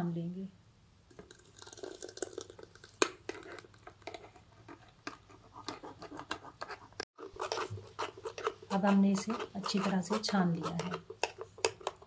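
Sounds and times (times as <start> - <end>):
spoon scraping metal strainer: 5.7 - 12.0.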